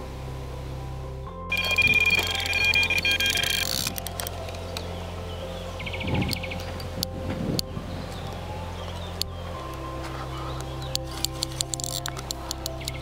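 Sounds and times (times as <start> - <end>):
bite alarm beeping: 1.5 - 3.9.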